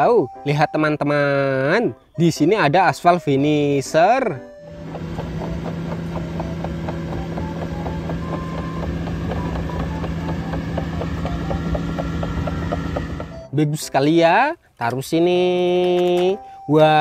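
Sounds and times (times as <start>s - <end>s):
diesel engine hum: 4.6s - 13.5s
tracks clicking and squeaking: 4.7s - 13.5s.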